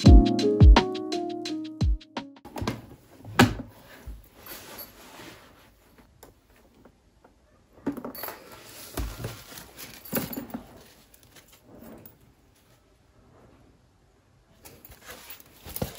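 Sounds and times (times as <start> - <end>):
bag rustling: 3.7 - 6.1, 8.1 - 12.3, 14.6 - 15.9.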